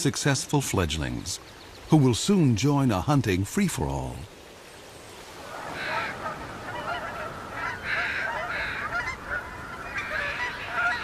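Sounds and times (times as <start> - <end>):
geese honking in flight: 5.5 - 11.0.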